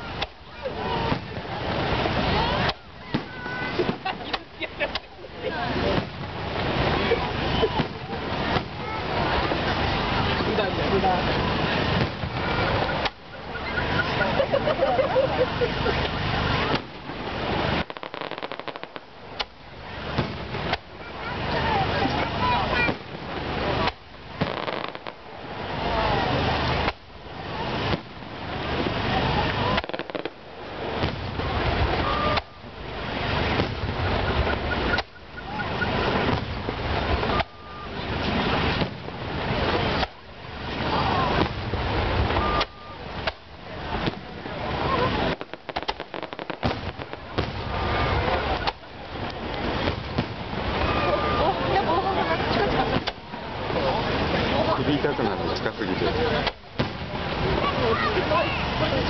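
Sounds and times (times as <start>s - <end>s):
crowd noise: 0.0s - 59.0s
fireworks booming: 0.0s - 59.0s
fireworks crackling: 0.0s - 59.0s
noisy background: 0.0s - 59.0s
firework shells bursting: 16.0s - 25.4s, 26.7s - 27.2s, 29.7s - 32.7s, 33.4s - 35.3s, 36.0s - 39.2s, 41.3s - 44.3s, 45.2s - 47.9s.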